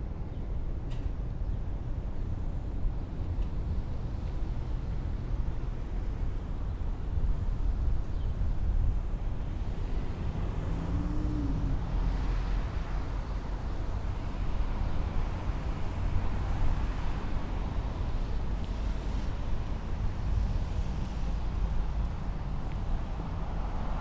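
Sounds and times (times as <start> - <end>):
passing cars rumbling: 9.3 - 24.0.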